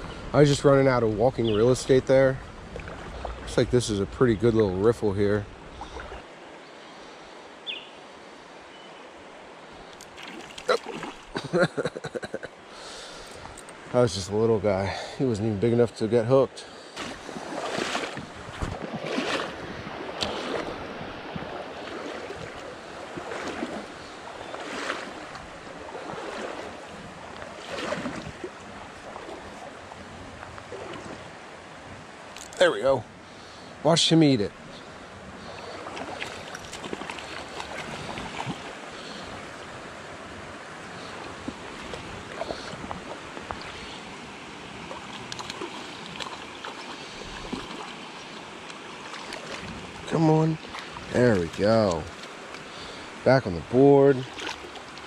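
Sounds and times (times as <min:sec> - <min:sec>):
river water running: 0:00.0 - 0:55.0
stream rushing over stones: 0:09.3 - 0:15.6, 0:16.7 - 0:32.9, 0:33.8 - 0:55.0
fish splashing at surface: 0:17.0 - 0:23.8.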